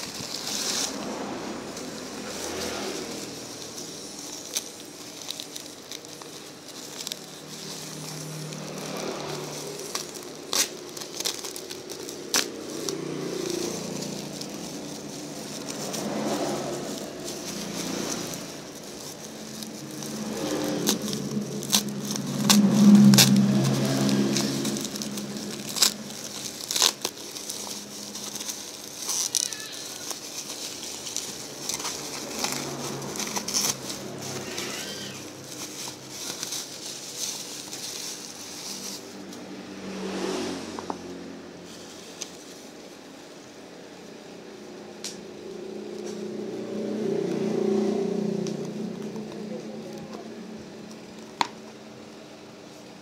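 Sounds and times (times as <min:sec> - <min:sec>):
plastic wrap crinkling: 0:00.0 - 0:40.2.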